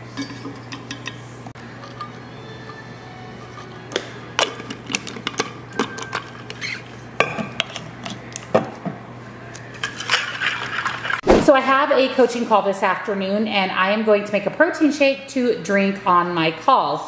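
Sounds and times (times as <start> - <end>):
ice clinking in metal bottle: 4.4 - 6.7.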